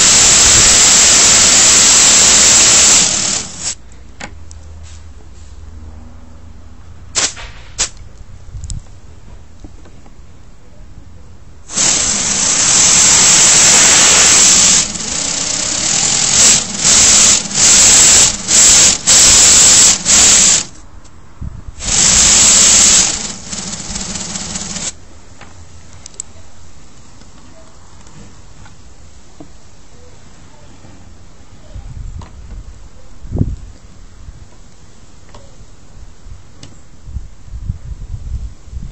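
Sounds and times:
air engine model hissing: 0.0s - 3.8s, 11.7s - 20.8s, 21.8s - 25.0s.

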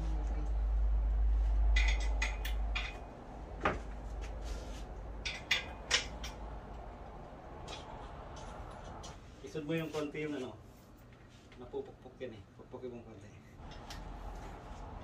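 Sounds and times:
hardware clicks and knocks: 1.7s - 4.0s, 5.2s - 6.5s.

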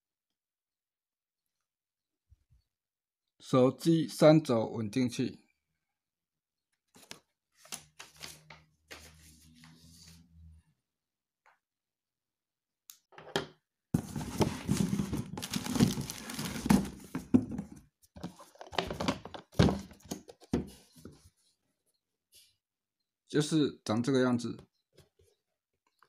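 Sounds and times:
cardboard and plastic rustling: 14.0s - 20.7s.

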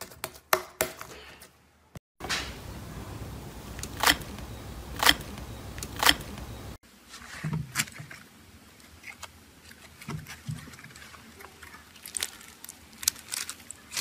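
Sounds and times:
foam slime crackling: 8.8s - 14.0s
slime squishing: 9.0s - 14.0s.

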